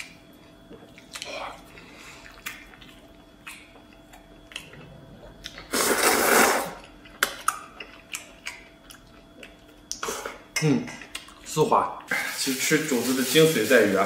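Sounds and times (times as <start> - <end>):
person slurping noodles: 5.6 - 6.8.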